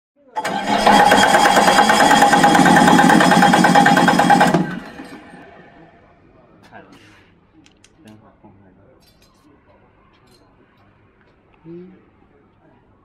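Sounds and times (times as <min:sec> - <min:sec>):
diesel engine whirring and whining: 0:00.4 - 0:05.9.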